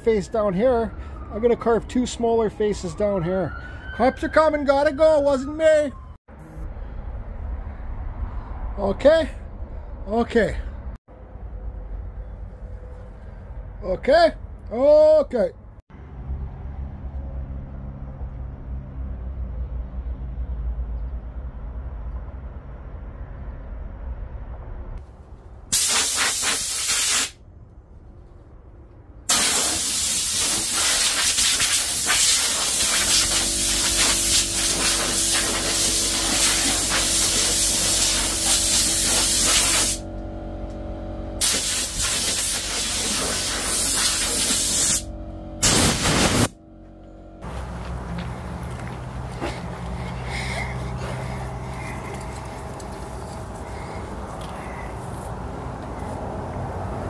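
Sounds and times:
loud steady hissing: 0:29.3 - 0:40.0, 0:41.4 - 0:46.5
chainsaw engine running: 0:32.6 - 0:41.4
low hum: 0:32.9 - 0:42.2, 0:44.2 - 0:57.0.

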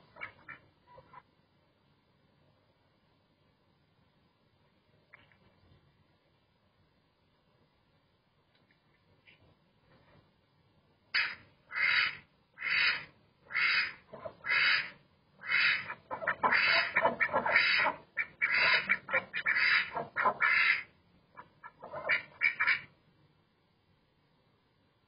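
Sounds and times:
ducks quacking: 0:00.0 - 0:01.2, 0:11.2 - 0:22.9.

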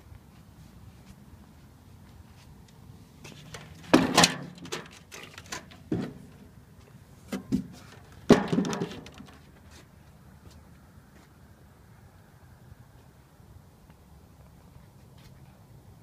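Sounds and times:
sharp knocks and clunks: 0:03.5 - 0:06.4, 0:07.3 - 0:09.4.

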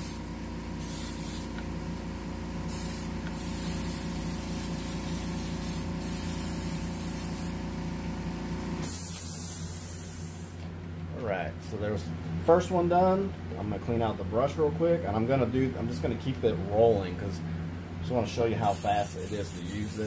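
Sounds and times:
airbrush spraying hiss: 0:00.0 - 0:01.7, 0:02.6 - 0:07.6, 0:08.8 - 0:10.6, 0:18.6 - 0:20.0
steady low hum: 0:00.0 - 0:20.0.

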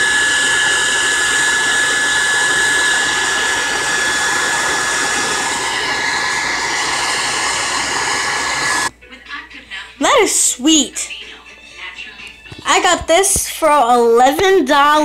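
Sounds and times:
hair dryer blowing with whine: 0:00.0 - 0:08.9.

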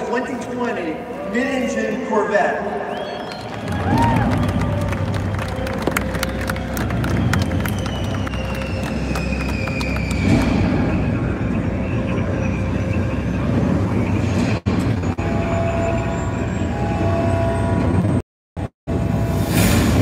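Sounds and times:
rumbling sound effects over speakers: 0:03.4 - 0:18.2.

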